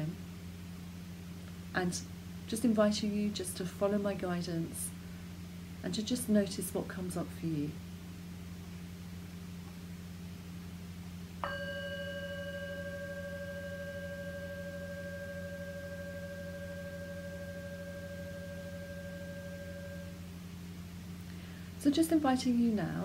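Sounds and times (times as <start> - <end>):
meditation chime ringing: 11.4 - 20.2.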